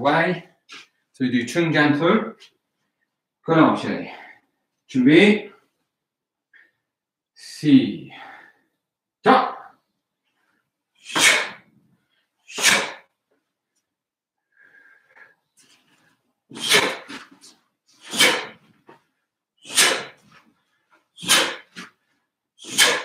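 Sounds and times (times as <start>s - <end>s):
sharp forced exhalations: 11.0s - 11.7s, 12.4s - 13.1s, 14.5s - 18.7s, 19.6s - 20.4s, 21.2s - 22.0s, 22.6s - 23.0s.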